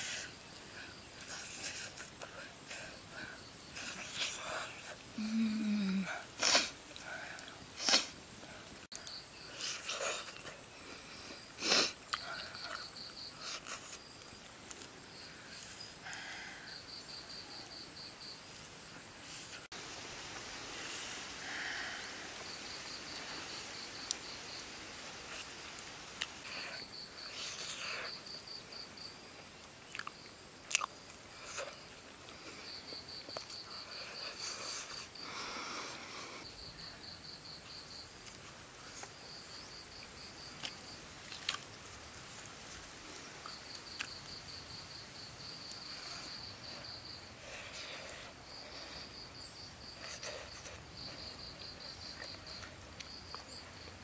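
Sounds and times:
person chewing: 29.9 - 32.4, 40.6 - 41.7.

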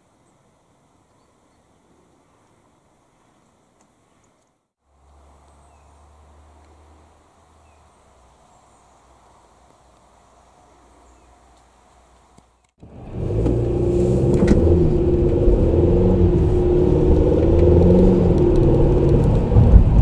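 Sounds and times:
car engine and road noise: 4.5 - 20.0.

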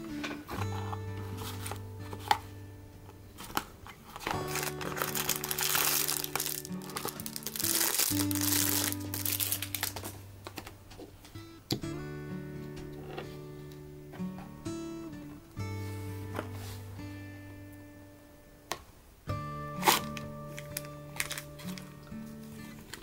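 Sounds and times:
acoustic guitar music: 0.0 - 23.0
cardboard box rustling: 0.6 - 2.4, 3.4 - 10.2, 21.2 - 21.8
plastic wrapping crinkling: 3.4 - 11.2, 19.7 - 23.0.

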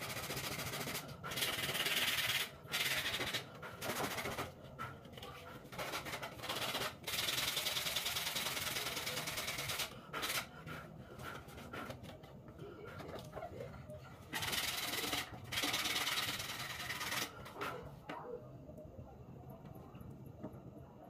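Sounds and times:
sandpaper sanding wood: 0.0 - 4.4, 5.8 - 10.5, 14.4 - 17.3.

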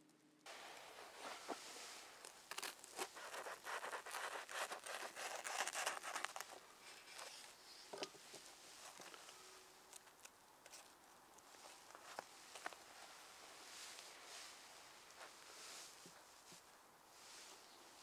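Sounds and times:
knife crunching through toasted bread: 2.5 - 6.6.

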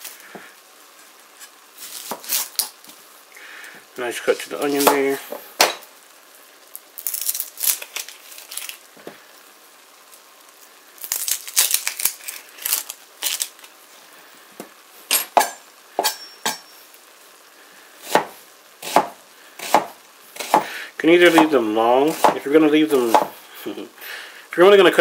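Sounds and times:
onion skin crinkling and tearing: 0.0 - 3.0, 6.6 - 13.8.

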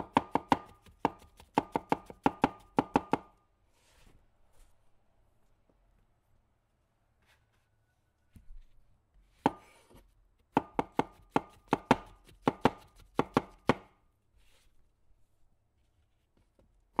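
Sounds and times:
knife tapping cutting board: 0.0 - 3.3, 10.6 - 13.9.

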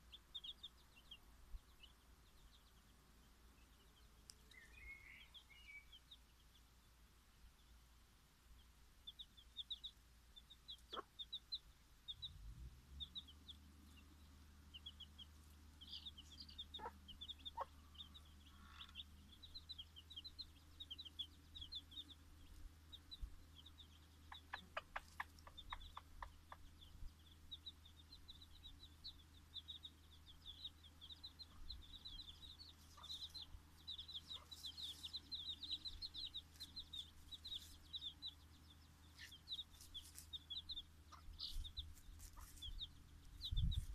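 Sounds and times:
chicks peeping: 0.0 - 43.9
hen clucking: 10.7 - 11.5, 14.7 - 21.9, 23.6 - 27.7, 30.8 - 43.0.

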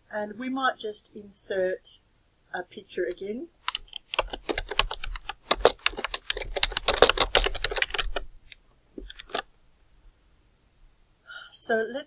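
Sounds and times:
computer keyboard typing: 3.6 - 8.3, 9.0 - 9.5.

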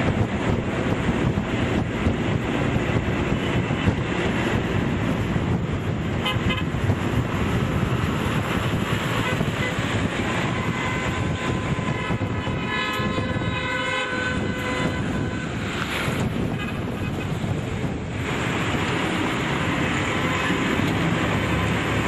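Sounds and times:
tyre and road noise: 0.0 - 22.0
wind buffeting microphone: 0.0 - 22.0
car horn toots: 6.2 - 6.8, 9.2 - 15.6, 16.4 - 17.3.

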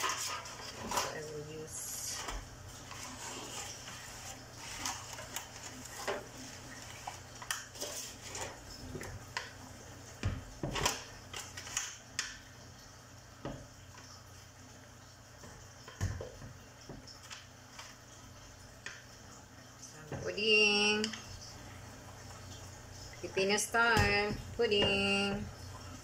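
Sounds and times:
foil trays clicking and knocking: 2.1 - 8.6, 10.2 - 12.3.

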